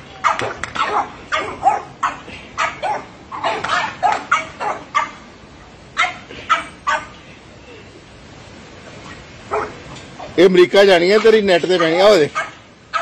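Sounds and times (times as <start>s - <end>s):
small dogs yapping: 0.2s - 5.2s, 6.0s - 7.2s, 9.5s - 10.4s, 11.8s - 13.0s.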